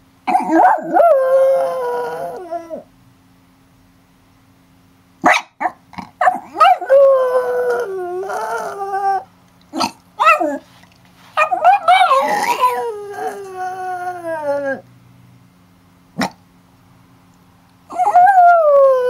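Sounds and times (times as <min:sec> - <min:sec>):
dog howling: 0:00.4 - 0:02.9, 0:06.5 - 0:09.3, 0:11.4 - 0:14.8, 0:17.9 - 0:19.0
dog yipping: 0:05.2 - 0:06.9, 0:10.2 - 0:10.6, 0:11.4 - 0:12.8.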